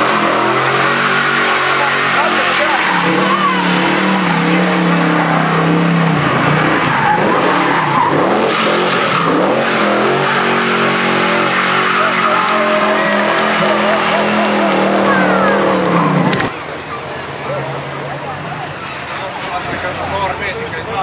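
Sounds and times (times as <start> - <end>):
car engine revving hard: 0.0 - 16.6
tyres squealing: 0.0 - 20.2.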